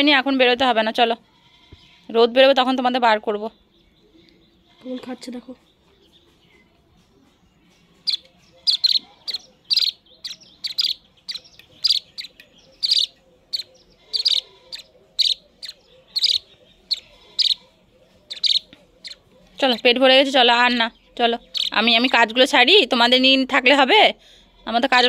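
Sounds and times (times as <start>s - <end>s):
chicks chirping: 7.7s - 19.8s, 20.9s - 22.2s.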